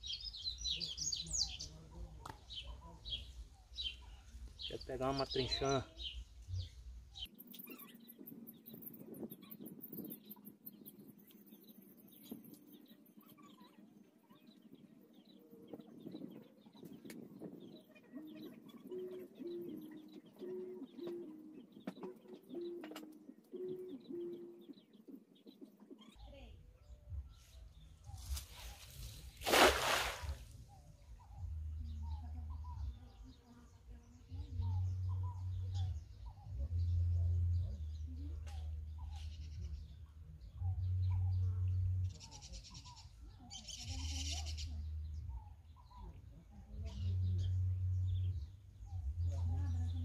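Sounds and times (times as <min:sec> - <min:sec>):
small birds chirping: 0:00.0 - 0:50.0
net splashing into water: 0:28.4 - 0:30.5.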